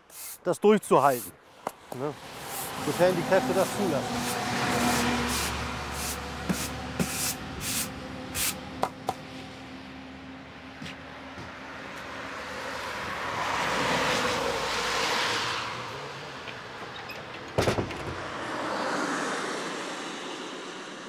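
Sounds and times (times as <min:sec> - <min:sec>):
broom sweeping a doormat: 0:00.0 - 0:01.3, 0:02.2 - 0:08.6
road vehicle passing: 0:01.5 - 0:21.0.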